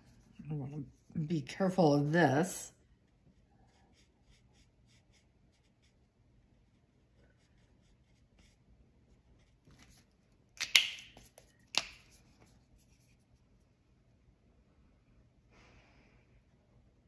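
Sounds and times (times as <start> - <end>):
plastic marker clicks: 10.6 - 12.0.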